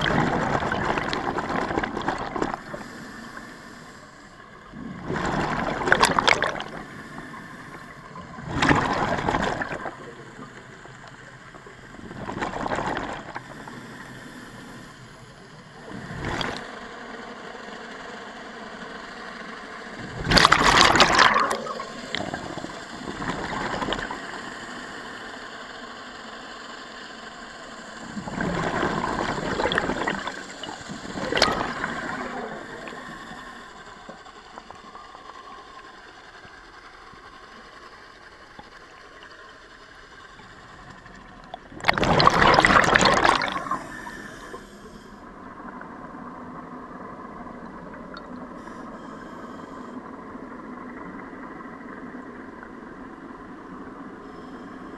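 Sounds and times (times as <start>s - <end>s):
regulator bubbling underwater: 0.0s - 3.4s, 4.5s - 14.8s, 15.6s - 16.8s, 20.0s - 24.4s, 27.9s - 35.2s, 40.3s - 49.0s.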